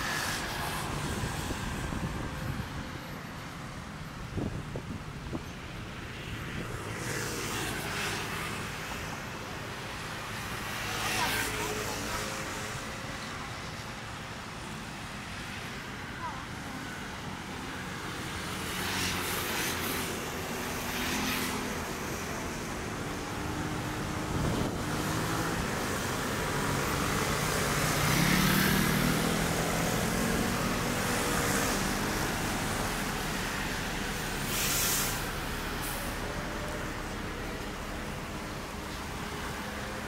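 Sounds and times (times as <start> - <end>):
traffic rumble: 0.0 - 40.0
hissing swishes of vehicles: 27.7 - 39.7.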